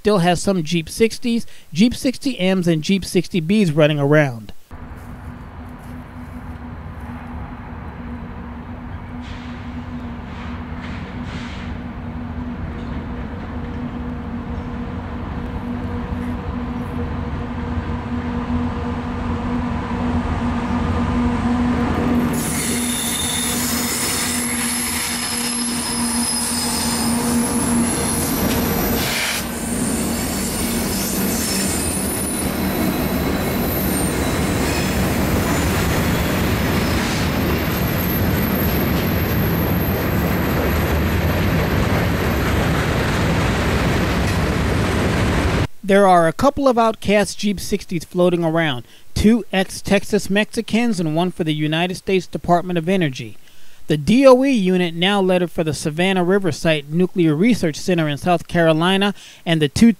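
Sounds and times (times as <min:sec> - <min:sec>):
diesel locomotive engine: 0:04.7 - 0:45.8
train cars rolling rumble: 0:04.8 - 0:45.7
high-pitched wheel squeal: 0:22.2 - 0:40.3.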